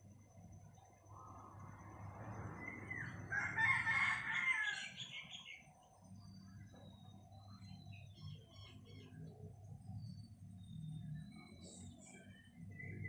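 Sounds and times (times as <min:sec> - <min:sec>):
rooster crowing: 0:02.6 - 0:05.3.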